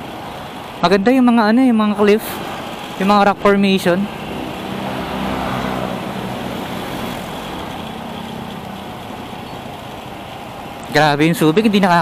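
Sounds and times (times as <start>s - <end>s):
wind and road noise: 0.0s - 12.0s
motorcycle engine running: 2.4s - 10.8s.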